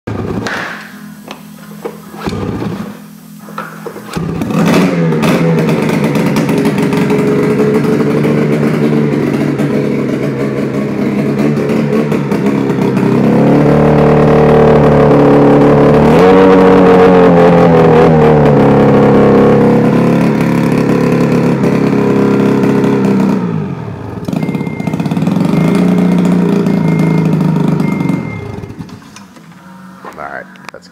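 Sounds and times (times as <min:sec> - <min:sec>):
snowmobile engine revving: 0:04.1 - 0:28.8.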